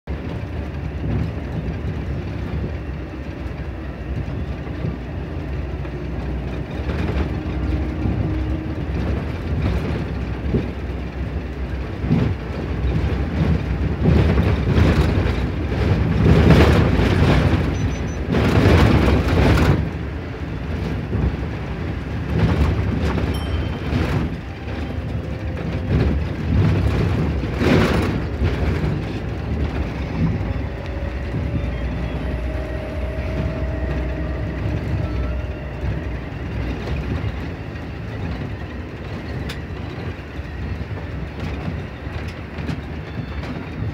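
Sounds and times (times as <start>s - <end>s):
bus engine and road noise: 0.0s - 43.9s
rattles: 0.2s - 43.9s
stop-request bell: 23.3s - 24.6s
rising whine: 29.2s - 38.1s.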